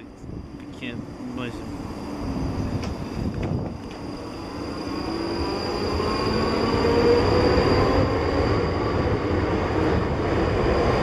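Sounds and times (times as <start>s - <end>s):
train wheels on rails: 1.4s - 11.0s.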